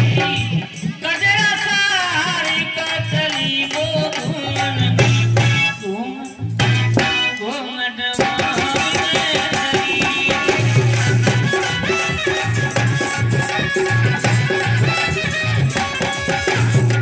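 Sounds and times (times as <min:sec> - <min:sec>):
hand drums beating: 0:00.0 - 0:05.8, 0:06.5 - 0:07.4, 0:08.2 - 0:17.0
jingling percussion: 0:00.0 - 0:17.0
folk melody: 0:10.6 - 0:17.0.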